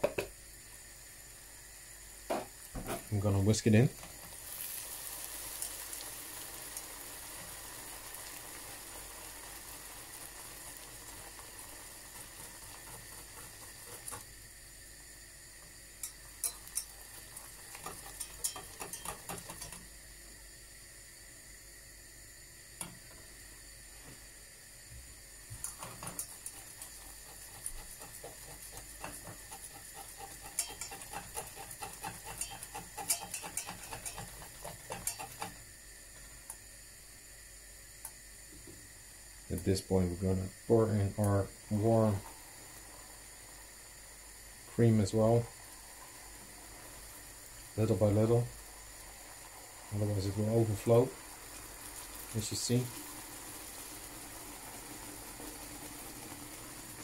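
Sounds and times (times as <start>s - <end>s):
caramel sizzling and bubbling: 0.0s - 57.0s
whisk clicking and scraping pan: 11.2s - 14.3s, 16.0s - 19.8s, 25.6s - 35.6s.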